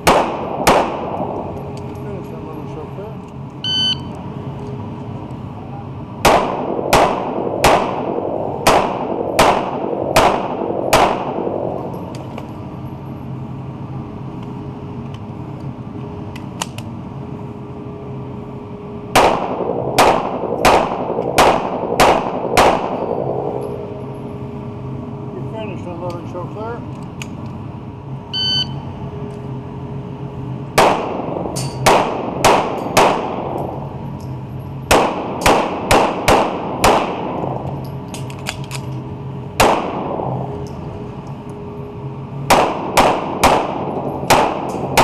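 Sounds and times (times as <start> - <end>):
pistol shots echoing: 0.0 - 1.7, 6.2 - 11.8, 19.1 - 23.5, 30.8 - 33.8, 34.9 - 37.6, 39.6 - 40.5, 42.5 - 45.0
shot timer beep: 3.6 - 4.1, 28.3 - 28.8.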